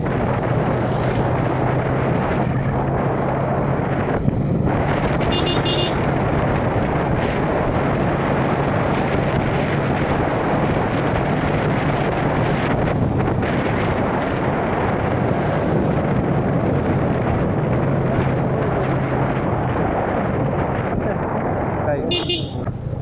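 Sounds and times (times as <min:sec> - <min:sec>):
vehicle engine drone: 0:00.0 - 0:23.0
wind rushing over microphone: 0:00.0 - 0:23.0
double horn beep: 0:05.3 - 0:06.0, 0:22.1 - 0:22.6.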